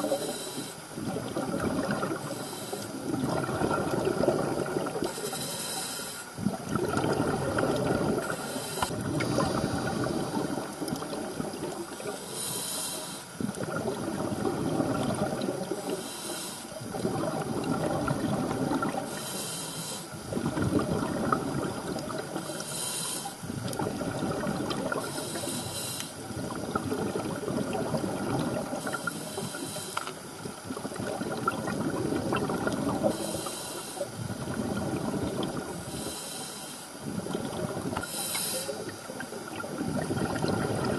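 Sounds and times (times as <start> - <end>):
regulator hissing inhalation: 0.0 - 0.8, 2.3 - 3.0, 5.1 - 6.3, 8.2 - 10.4, 12.0 - 13.4, 15.9 - 16.8, 19.1 - 20.2, 22.5 - 23.4, 25.0 - 26.2, 28.8 - 30.2, 33.1 - 34.2, 35.9 - 37.0, 38.0 - 38.9
exhaled bubbles rushing: 1.0 - 2.3, 3.0 - 5.1, 6.4 - 12.2, 13.4 - 16.0, 16.8 - 19.2, 20.2 - 22.5, 23.4 - 25.4, 26.2 - 29.1, 30.4 - 33.1, 34.2 - 35.9, 37.0 - 38.1, 38.8 - 40.9.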